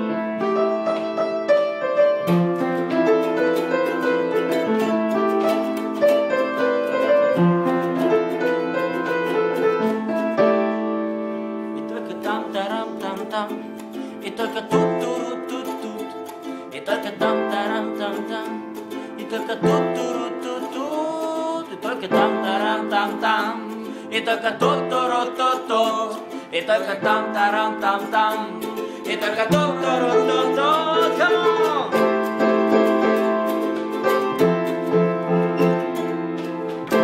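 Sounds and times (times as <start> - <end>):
piano chords: 0.0 - 37.0
ukulele strumming: 0.0 - 37.0
men singing: 16.8 - 18.6, 21.7 - 32.0.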